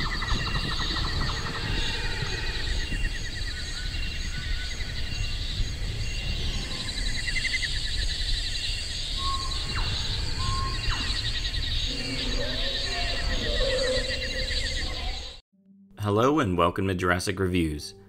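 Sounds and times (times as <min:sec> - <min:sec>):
low animal call: 0:00.0 - 0:05.1, 0:09.2 - 0:15.4
bird-like chirps and whistles: 0:00.0 - 0:15.4
insects trilling: 0:00.0 - 0:15.4.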